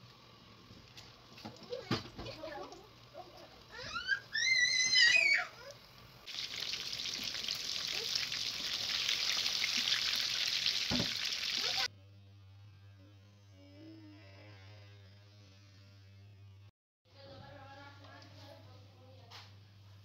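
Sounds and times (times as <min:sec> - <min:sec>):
food deep-frying in oil: 0:06.2 - 0:11.9.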